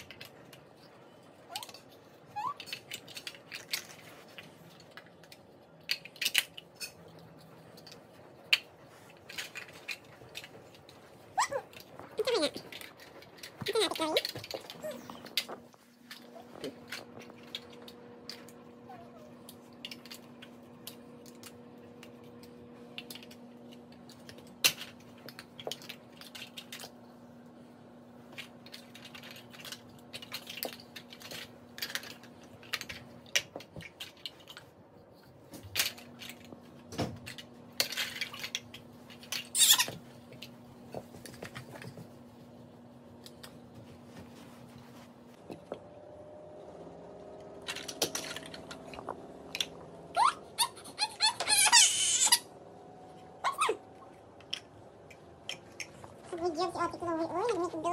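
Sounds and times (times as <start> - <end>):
plastic toy blocks clicking: 0.0 - 11.0, 19.4 - 27.0, 28.3 - 34.7, 37.3 - 40.5, 47.6 - 50.3.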